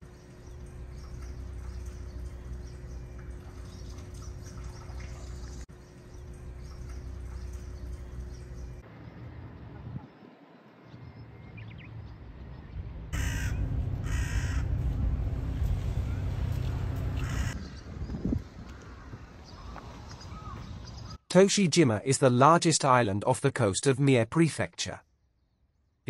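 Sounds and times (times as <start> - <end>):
outdoor background noise: 0.0 - 26.0
crow cawing: 13.2 - 14.8, 17.2 - 17.6, 18.7 - 20.6.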